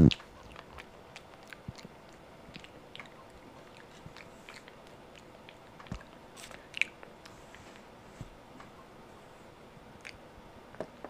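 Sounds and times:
monkey chewing: 0.0 - 7.9.

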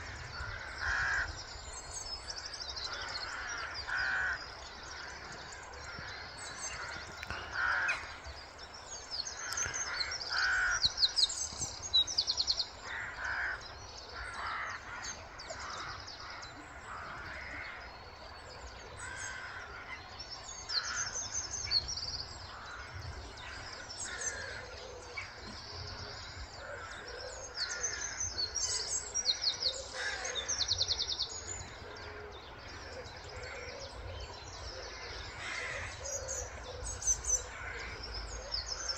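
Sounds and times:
crows cawing: 0.0 - 1.4, 2.9 - 8.2, 9.4 - 11.1, 12.8 - 17.9, 19.0 - 20.0, 22.5 - 25.3, 26.6 - 30.8, 35.0 - 36.8
songbirds chirping and trilling: 0.0 - 38.9.

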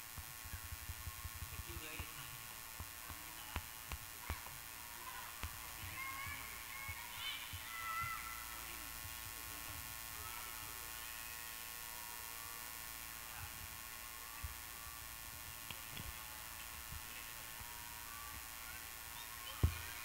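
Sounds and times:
soft low thumps: 0.0 - 8.2
electrical hum: 0.0 - 20.0
faint background music: 0.0 - 20.0.

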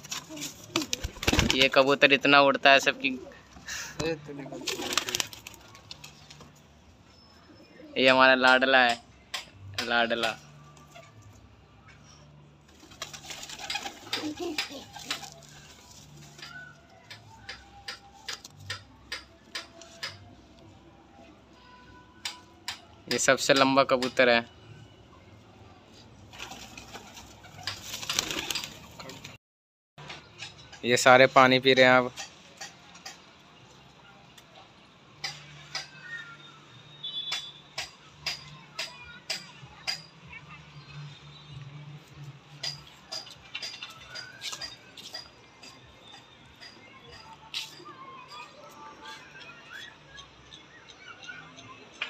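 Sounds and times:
pigeons pecking on concrete: 4.5 - 6.5, 12.7 - 20.4.

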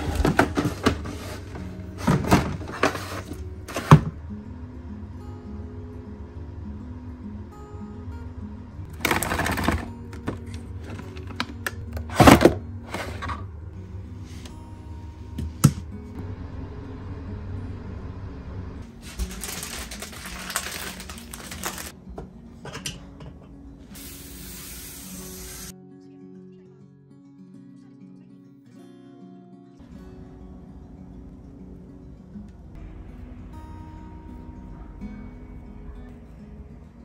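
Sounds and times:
cords and packaging rustling: 0.0 - 4.2, 8.9 - 13.5, 18.9 - 22.0
soft background music: 0.0 - 37.0.

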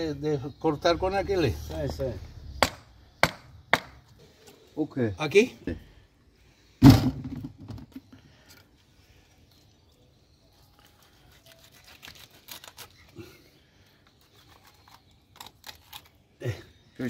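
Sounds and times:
knife cutting fish flesh: 11.3 - 13.0.

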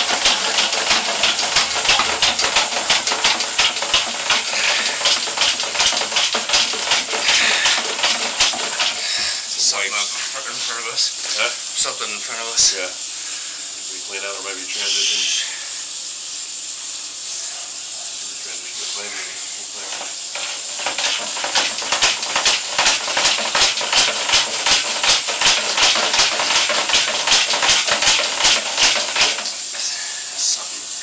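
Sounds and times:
cable rasping in a drain pipe: 0.0 - 12.7, 18.7 - 30.0
steady hiss: 0.0 - 31.0.

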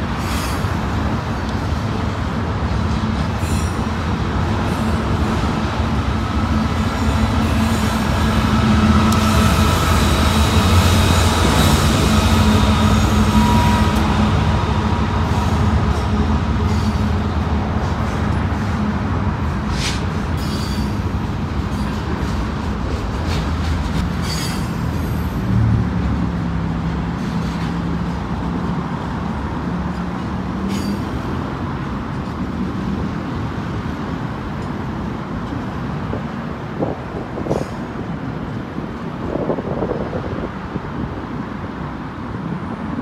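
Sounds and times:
locomotive engine hum: 0.0 - 43.0
rumble of train cars: 0.0 - 43.0
steel wheel squeal: 9.1 - 14.0, 20.4 - 21.0.

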